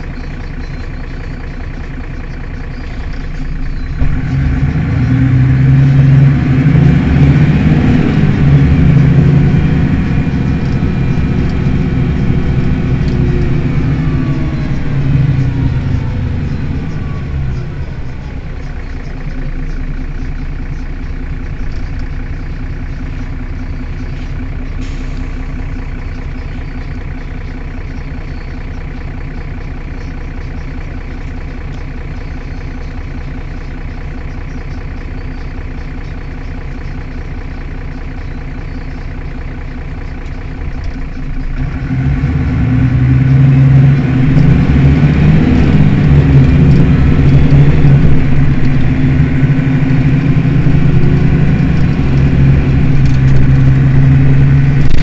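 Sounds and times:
bus engine revving pulling away: 0.0s - 27.4s, 40.2s - 55.0s
bus diesel engine idling: 0.0s - 55.0s.

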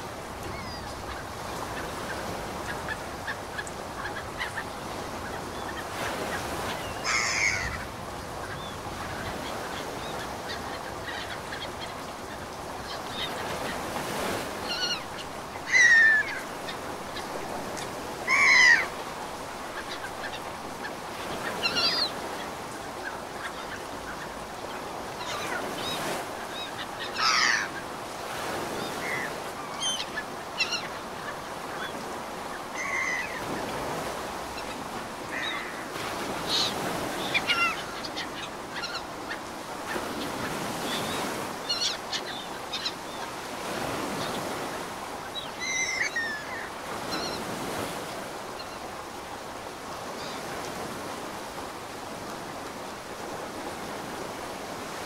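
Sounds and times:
ocean surf: 0.0s - 55.0s
birds honking: 6.4s - 7.9s, 27.1s - 27.8s.

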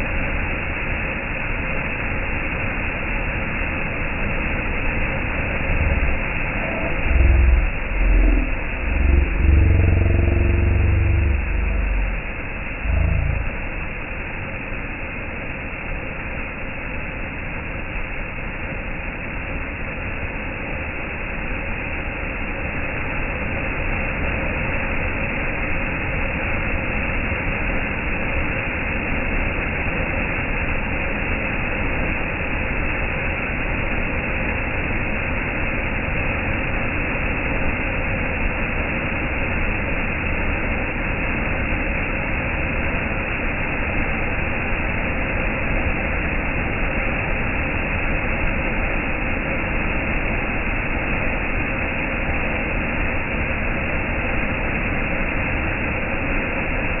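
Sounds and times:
fountain firework hissing: 3.3s - 15.2s.

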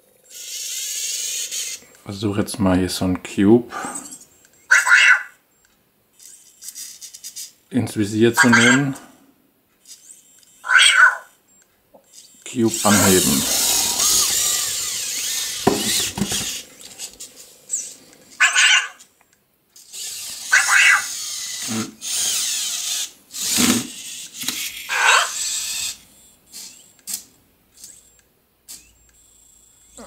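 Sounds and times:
small electric motors whirring: 0.2s - 2.0s, 6.1s - 7.6s, 9.8s - 11.4s, 12.0s - 19.1s, 19.8s - 30.0s.

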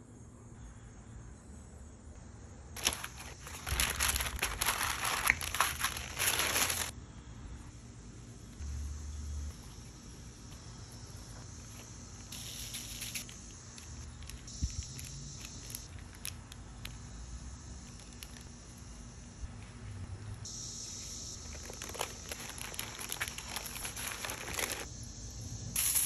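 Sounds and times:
food and paper crinkling: 2.8s - 6.9s, 11.3s - 16.6s, 21.3s - 24.9s.

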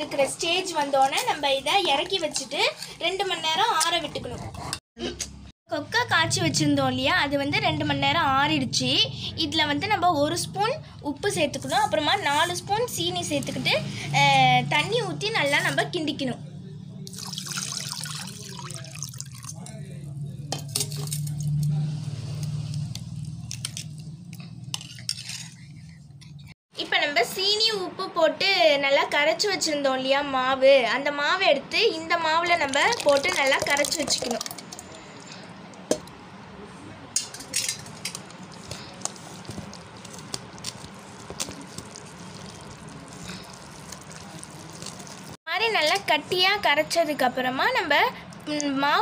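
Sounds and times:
spoon mashing wet paste: 37.3s - 46.1s
hand squishing batter: 38.2s - 45.4s.

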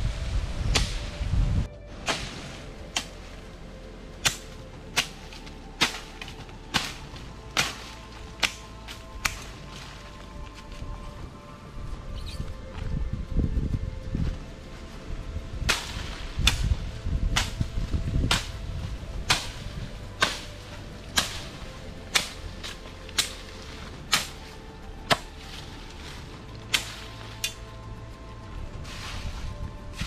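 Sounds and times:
machete chopping into ground: 2.0s - 3.2s, 4.2s - 9.6s, 15.7s - 16.8s, 18.3s - 18.6s, 19.2s - 24.5s, 26.7s - 27.6s.

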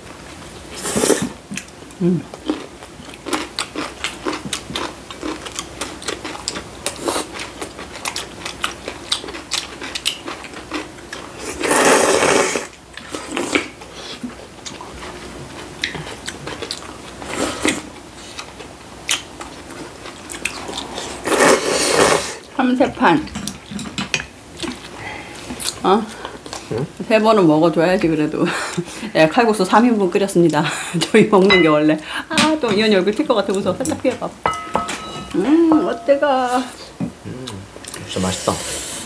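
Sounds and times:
wet chewing and mouth clicks: 1.5s - 11.3s, 14.6s - 21.0s, 24.6s - 26.8s
slurping noodles: 11.4s - 13.7s, 20.7s - 22.4s.

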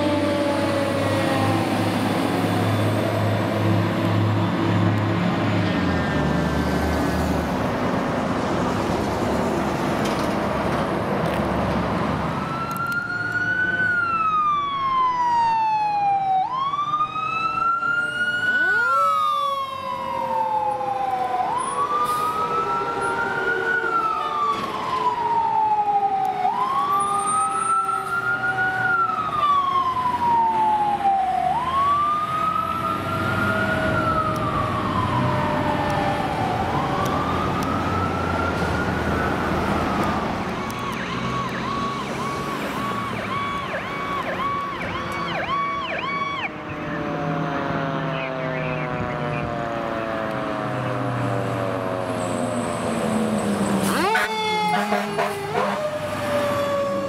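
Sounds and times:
low steady siren tone: 0.0s - 4.5s, 12.3s - 57.0s
fire engine passing: 0.0s - 57.0s
siren wailing up and down: 12.3s - 57.0s.

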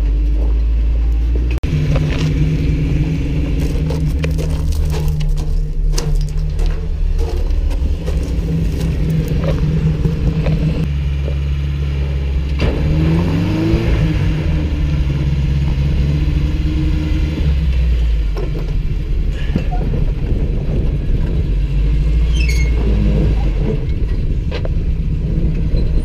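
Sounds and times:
truck engine rumbling and revving: 0.0s - 26.0s.

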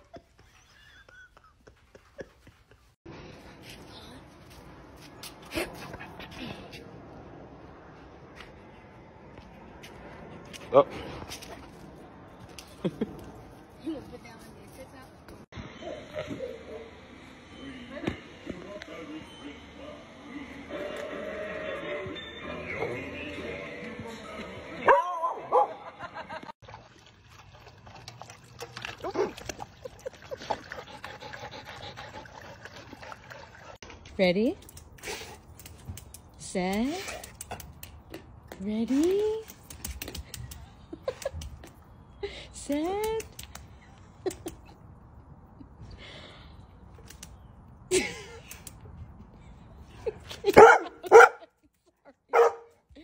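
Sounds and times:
dogs lapping water: 26.6s - 34.0s
large dog barking: 50.6s - 51.4s, 52.3s - 52.7s.

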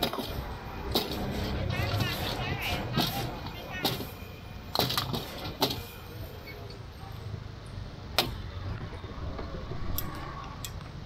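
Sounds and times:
low traffic rumble: 0.0s - 11.0s
faint voices: 0.8s - 4.3s.

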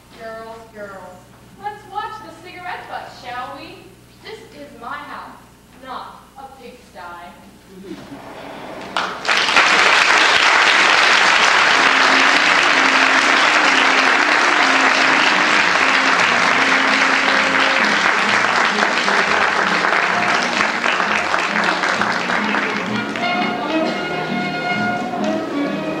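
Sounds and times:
audience applauding: 8.8s - 25.8s.

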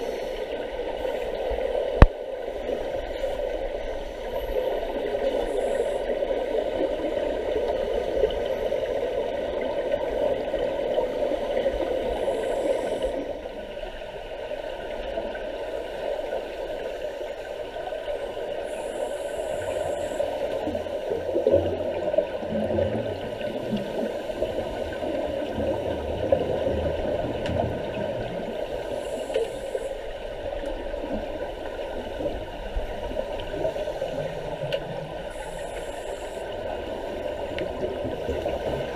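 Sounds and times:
muffled underwater noise: 0.0s - 38.9s
scuba exhaust bubbles gurgling: 0.0s - 38.9s.

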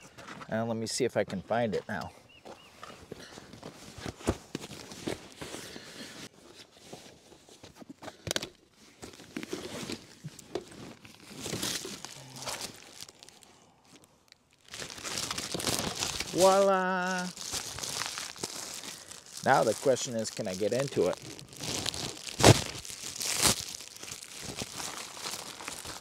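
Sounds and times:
plastic bags rustling: 8.3s - 26.0s.

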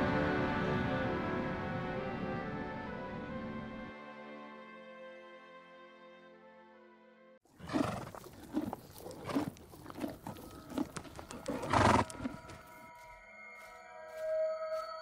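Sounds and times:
soft sustained music: 0.0s - 7.4s, 9.8s - 15.0s
rough breathy animal calls: 7.5s - 12.5s.

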